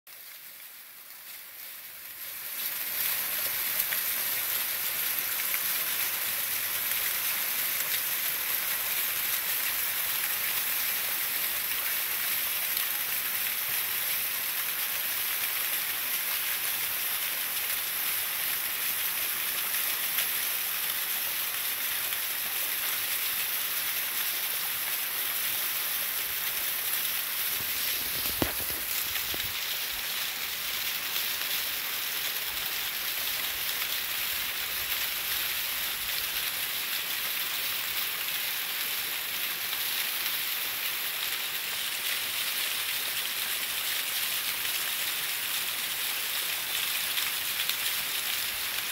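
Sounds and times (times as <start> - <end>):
small waterfall splashing over rock: 0.1 - 48.9.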